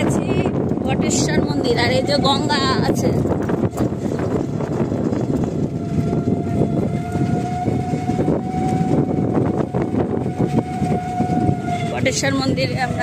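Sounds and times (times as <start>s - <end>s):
road rumble: 0.0s - 13.0s
vehicle body rattle: 3.2s - 7.5s.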